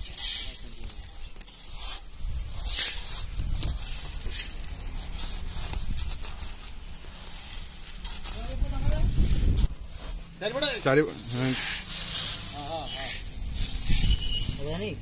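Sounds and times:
metal scoop scraping salt: 0.0s - 15.0s
plastic sack rustling: 0.0s - 15.0s
salt grains pouring: 11.2s - 14.9s.

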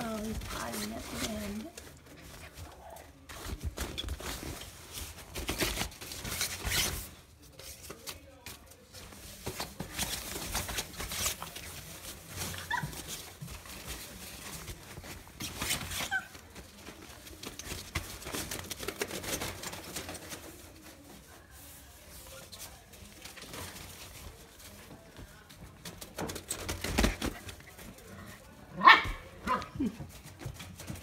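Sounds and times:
nylon tunnel rustling: 0.0s - 7.6s.

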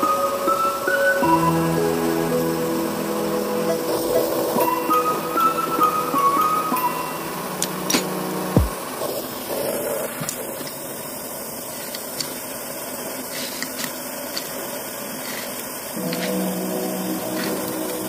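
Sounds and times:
music: 0.0s - 8.8s, 16.0s - 18.0s
gas torch hissing: 0.1s - 18.0s.

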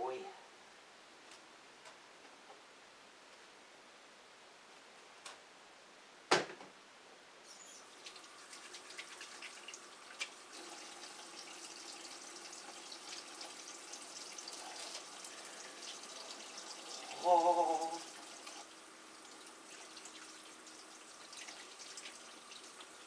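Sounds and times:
tap water running into sink: 7.8s - 23.0s.

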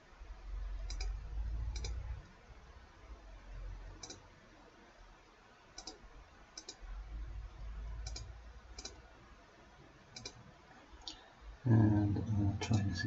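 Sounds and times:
faint low rumble: 0.0s - 13.0s
computer mouse button clicking: 0.9s - 2.0s, 5.8s - 6.0s, 6.6s - 6.8s, 8.0s - 9.0s, 10.2s - 10.4s.

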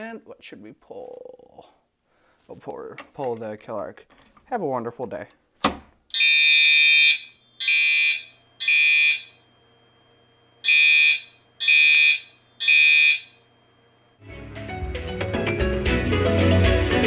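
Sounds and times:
fire alarm horn blasts: 6.1s - 9.6s, 10.6s - 13.7s.

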